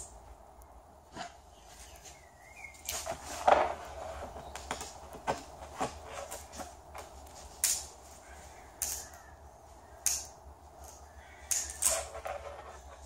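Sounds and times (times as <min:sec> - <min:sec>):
fibreglass cracking and knocking: 0:03.0 - 0:07.8.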